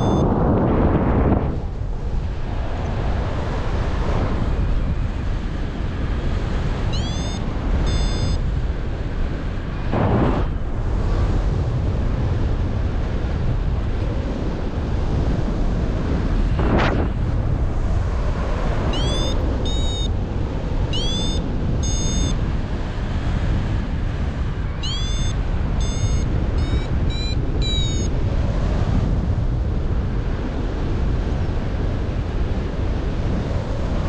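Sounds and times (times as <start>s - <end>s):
variometer beeps: 0.0s - 0.3s, 6.9s - 8.4s, 18.9s - 20.1s, 20.9s - 22.4s, 24.8s - 28.2s
wind rushing over microphone: 0.0s - 34.0s.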